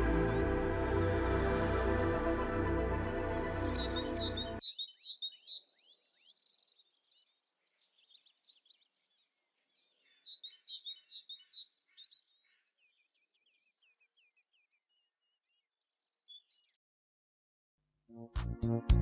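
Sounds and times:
small songbirds singing: 2.4s - 16.8s.

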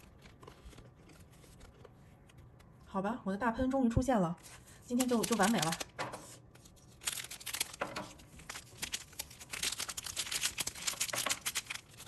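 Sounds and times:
foil wrapper crinkling: 4.9s - 12.0s.

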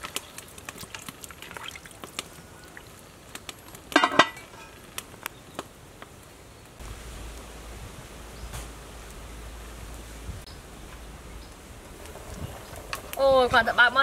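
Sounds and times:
soup simmering in pot: 0.0s - 7.4s.

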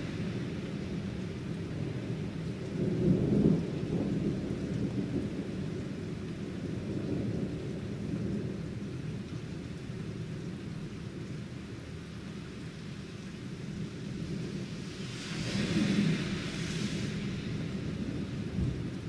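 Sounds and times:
thunder rumbling: 0.0s - 9.2s, 13.5s - 19.0s
steady rain: 0.0s - 19.0s.

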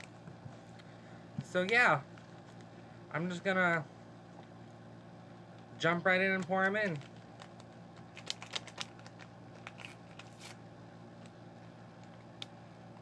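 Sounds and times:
paper packets crinkling: 6.3s - 10.6s.

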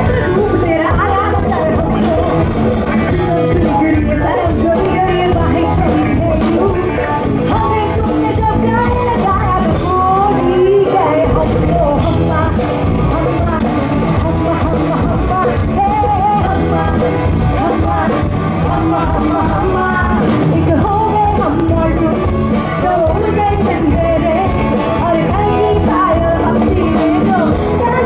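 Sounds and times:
amplified backing music with bass: 0.0s - 28.0s
woman singing into microphone: 0.0s - 28.0s.

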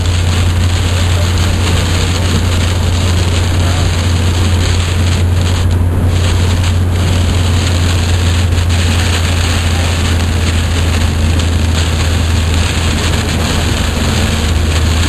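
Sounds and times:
car engine and tyres droning: 0.0s - 15.0s
heavy rain and road spray: 0.0s - 15.0s.

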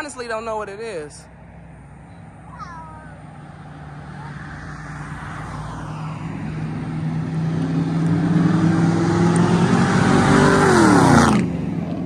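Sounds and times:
car passing by: 3.1s - 12.0s.

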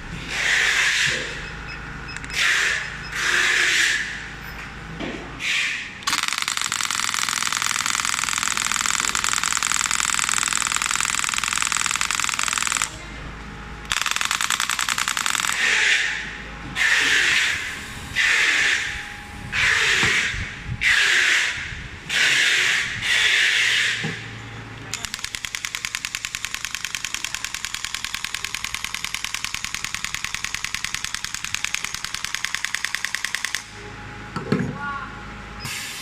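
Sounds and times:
pneumatic handpiece rapid rattle: 6.0s - 13.0s, 13.8s - 16.2s, 24.9s - 33.7s.

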